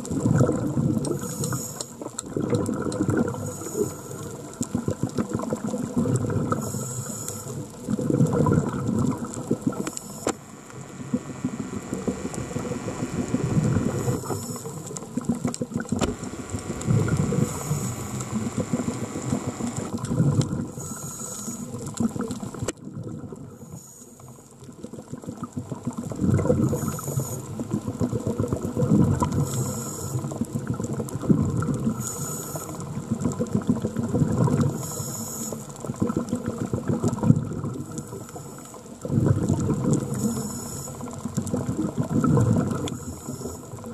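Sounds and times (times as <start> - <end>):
exhaled bubbles surging: 0.0 - 1.3, 2.2 - 6.7, 7.6 - 23.6, 24.8 - 34.8, 35.8 - 38.3, 38.9 - 40.4, 41.0 - 43.9
regulator inhale hiss: 1.1 - 2.0, 3.3 - 4.4, 6.5 - 7.6, 9.7 - 15.0, 16.0 - 19.9, 20.7 - 21.8, 23.6 - 24.5, 26.7 - 27.6, 29.4 - 30.4, 31.8 - 32.9, 34.6 - 35.8, 37.8 - 38.9, 40.1 - 41.1, 42.8 - 43.8.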